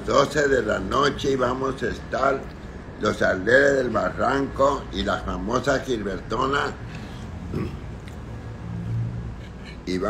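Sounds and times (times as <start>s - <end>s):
person humming or grunting: 7.4s - 7.9s.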